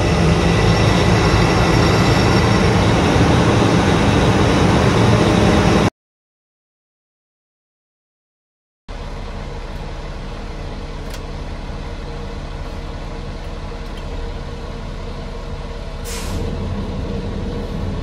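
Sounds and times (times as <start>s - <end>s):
diesel engine idling: 0.0s - 5.0s, 8.9s - 18.0s
compressed air hiss: 16.0s - 16.4s.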